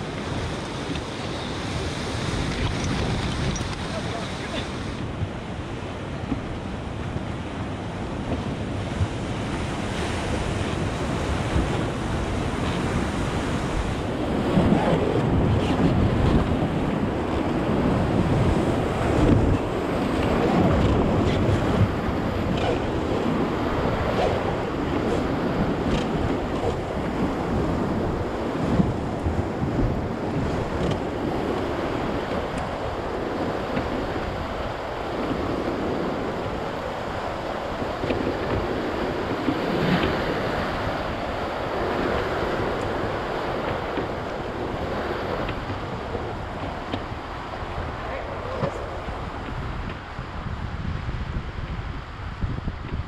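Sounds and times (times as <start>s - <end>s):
rushing whitewater: 0.0s - 6.2s, 8.7s - 50.5s
wind noise on microphone: 0.0s - 53.0s.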